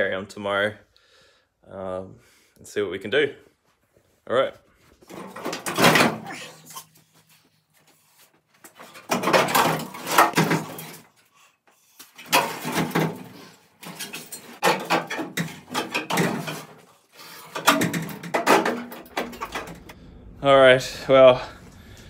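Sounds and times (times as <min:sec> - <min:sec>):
sheet steel scraping and clanking: 0:12.2 - 0:20.0.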